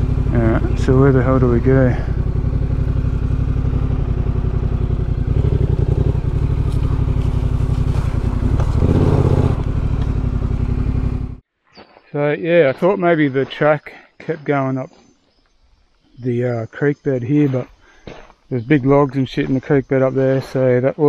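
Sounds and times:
motorcycle engine at low revs: 0:00.0 - 0:11.4.

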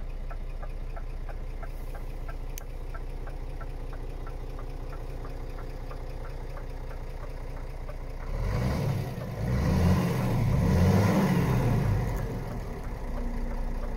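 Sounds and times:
diesel truck engine revving: 0:03.2 - 0:13.9.

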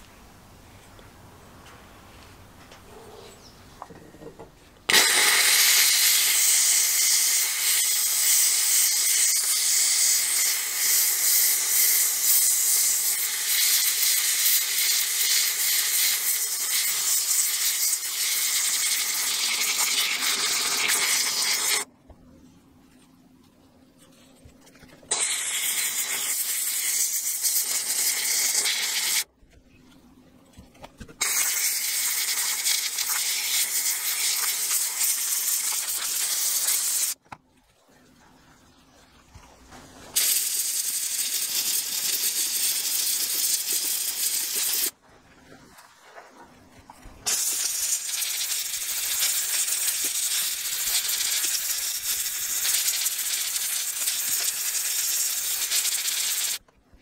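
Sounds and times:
steam cleaner hissing: 0:04.9 - 0:21.9, 0:25.1 - 0:29.3, 0:31.2 - 0:37.2, 0:40.2 - 0:45.0, 0:47.2 - 0:56.6.

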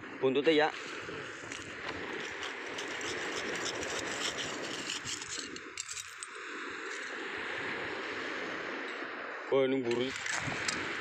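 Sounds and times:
steady hiss: 0:00.0 - 0:11.0
coral rubble clinking and crunching: 0:01.5 - 0:07.1.

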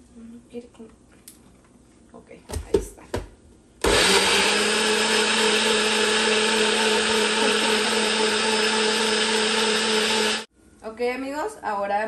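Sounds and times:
blender motor whine: 0:03.8 - 0:10.5.

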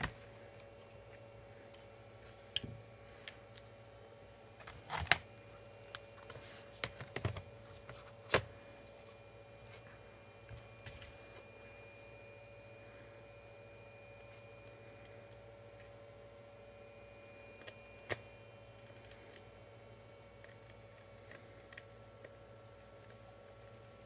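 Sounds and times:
faint steady hum: 0:00.0 - 0:24.0
clicks and knocks of laptop parts: 0:06.8 - 0:08.6.

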